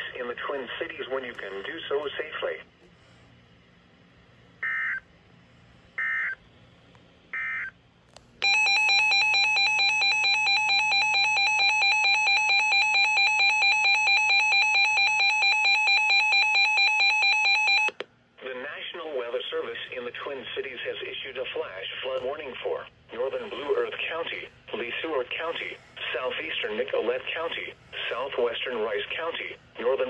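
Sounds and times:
pulsing electronic alarm beeping: 8.4s - 18.0s.

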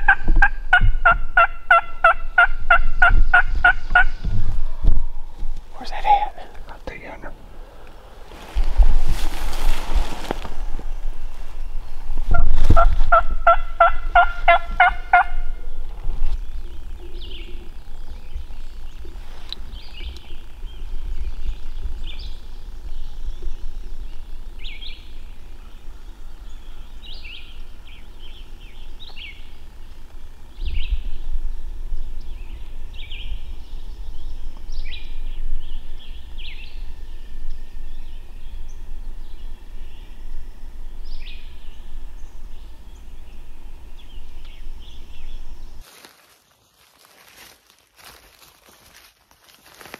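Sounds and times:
turkey calling: 0.0s - 4.2s, 12.3s - 15.7s
songbirds chirping: 0.0s - 49.9s.

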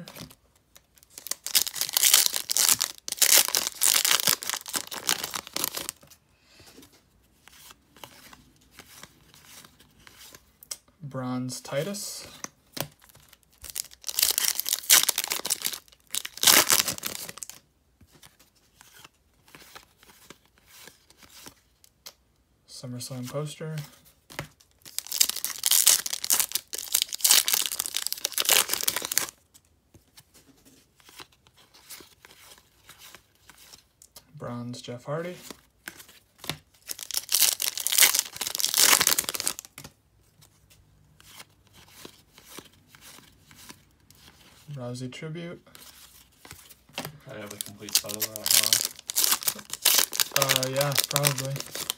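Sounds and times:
faint rustles of cards: 0.0s - 10.6s, 16.8s - 22.2s, 22.9s - 51.9s
wrapper tearing and crinkling: 1.0s - 6.0s, 13.3s - 17.6s, 24.8s - 29.4s, 36.8s - 39.7s, 47.4s - 51.9s.

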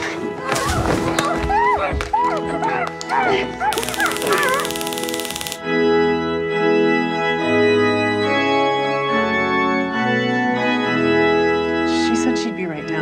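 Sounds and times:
organ playing slow chords: 4.7s - 11.9s.

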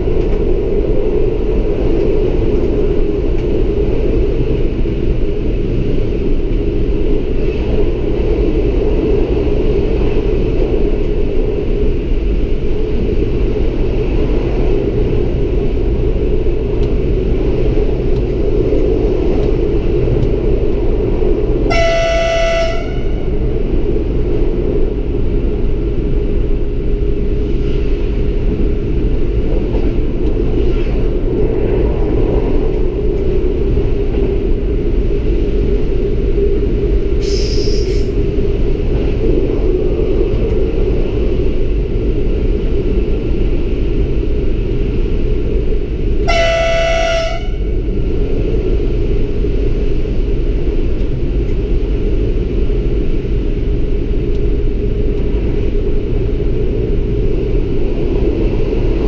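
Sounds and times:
train engine and wheels rumbling: 0.0s - 59.0s
train horn blast: 21.7s - 23.4s, 46.2s - 47.8s.

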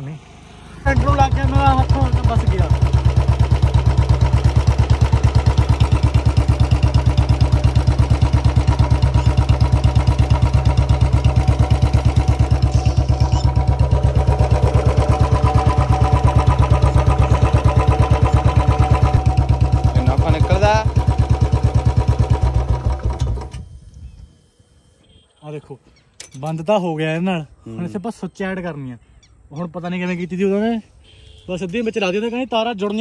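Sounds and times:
motorcycle engine idling: 0.0s - 23.5s.

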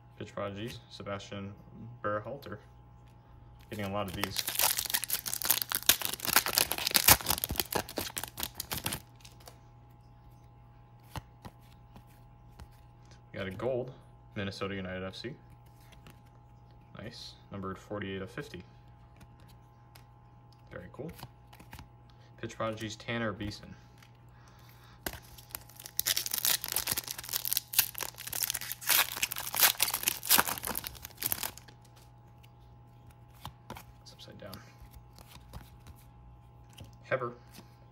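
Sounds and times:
foil wrapper crinkling and tearing: 3.6s - 9.6s, 25.1s - 32.1s.

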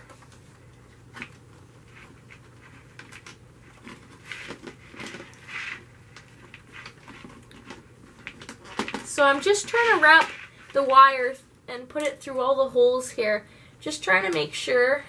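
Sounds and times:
wire scratching through plastic basket: 1.2s - 10.9s.

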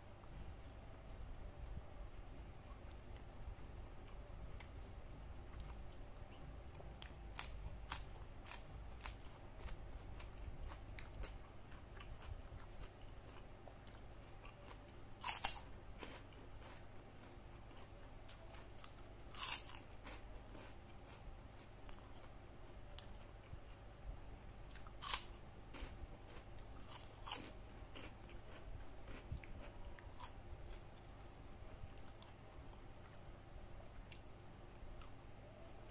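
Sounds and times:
chewing clicks and crackles: 5.6s - 21.2s, 24.7s - 33.2s
cracker crunching: 7.0s - 22.3s, 24.7s - 33.2s.

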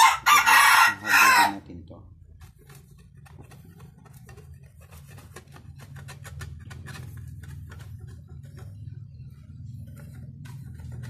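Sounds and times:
steady low hum: 1.6s - 11.0s.

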